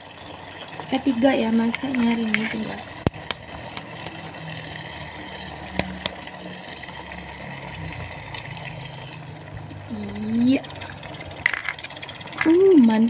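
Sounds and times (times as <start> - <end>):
sauce bubbling in a pot: 0.0 - 13.0
egg tapping against pot: 1.7 - 4.2.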